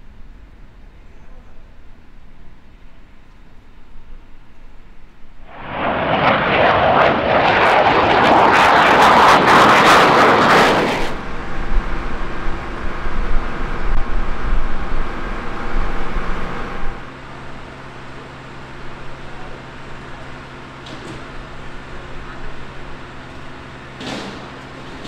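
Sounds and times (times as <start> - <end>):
jet engine roaring: 5.5 - 17.1.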